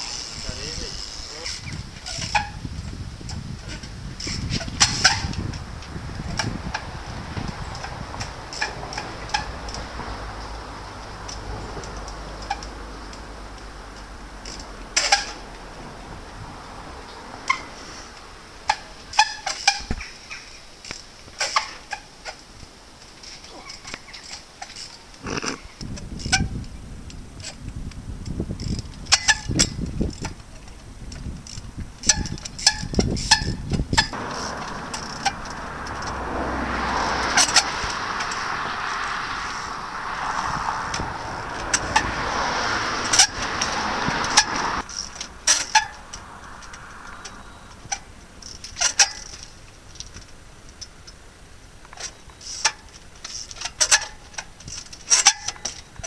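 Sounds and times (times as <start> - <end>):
wind rumble on microphone: 0.0 - 19.0, 25.2 - 48.3
rushing noise: 34.1 - 48.4.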